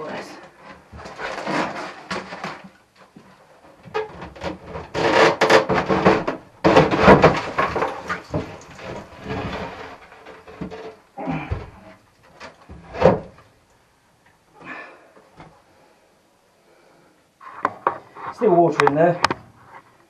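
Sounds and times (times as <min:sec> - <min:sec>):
debris clattering and scraping: 0:00.0 - 0:13.4.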